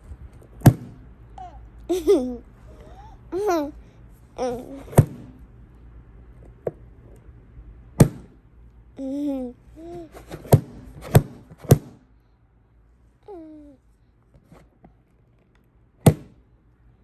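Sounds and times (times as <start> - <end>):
toddler babbling: 1.4 - 3.8, 4.4 - 4.9, 9.0 - 10.1, 13.3 - 13.8.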